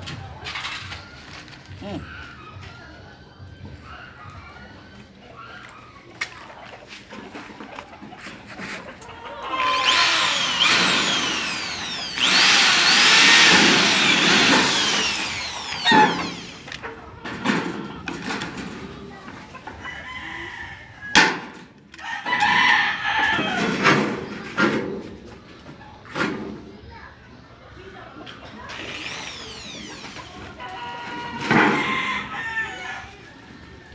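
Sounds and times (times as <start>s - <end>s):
electric drill drilling sheet metal: 9.5s - 16.8s, 28.7s - 31.3s.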